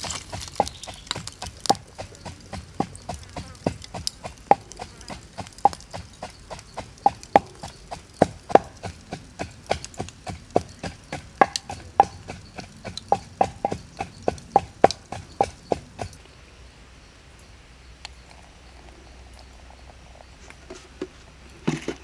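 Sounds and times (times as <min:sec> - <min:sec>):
charcoal fire crackling and popping: 0:00.0 - 0:16.3.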